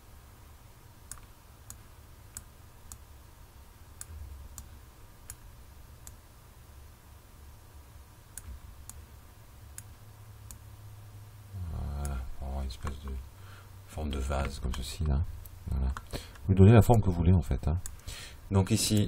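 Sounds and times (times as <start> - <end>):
low steady hum: 0.0 - 19.0
computer mouse clicking: 1.1 - 3.0.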